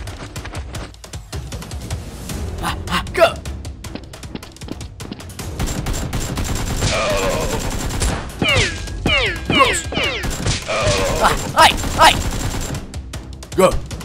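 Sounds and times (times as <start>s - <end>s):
person shouting: 2.6s - 3.4s, 10.9s - 12.2s
rapid gunfire: 5.4s - 13.1s.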